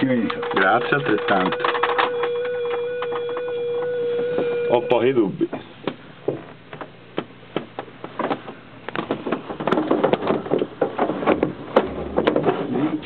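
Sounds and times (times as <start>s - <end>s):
cockpit handling clicks and rattles: 0.0s - 3.6s.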